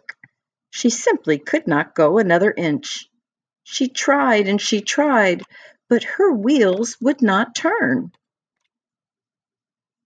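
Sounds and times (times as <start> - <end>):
woman reading aloud: 0.8 - 3.0, 3.7 - 8.2.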